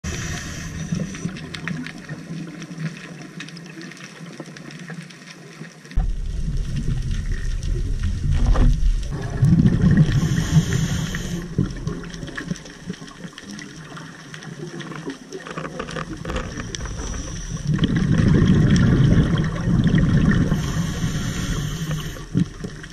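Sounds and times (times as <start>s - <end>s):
bubbling burst with hiss: 0.0s - 1.8s, 6.0s - 13.3s, 16.4s - 22.9s
muffled underwater noise: 0.0s - 22.9s.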